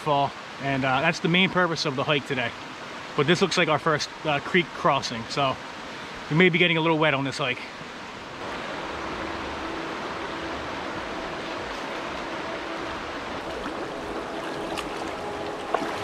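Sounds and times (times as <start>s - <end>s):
creek running over stones: 11.4s - 16.0s.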